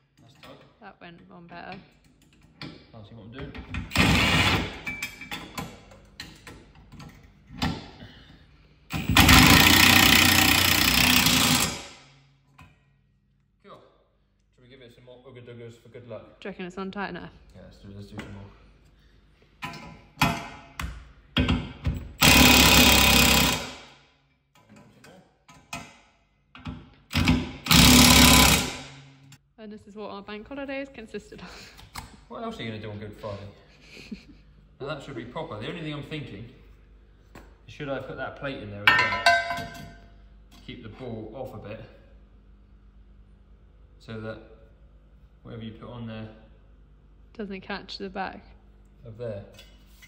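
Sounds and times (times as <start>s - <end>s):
impact wrench running: 3.7s - 5.0s, 8.9s - 12.3s, 21.4s - 24.0s, 27.0s - 29.3s.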